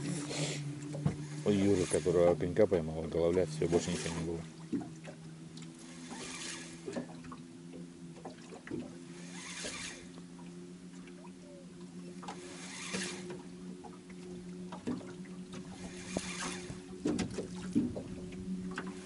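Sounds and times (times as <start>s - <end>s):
steady low hum: 0.0s - 19.0s
water lapping against a boat: 0.0s - 19.0s
small knocks: 14.7s - 18.9s.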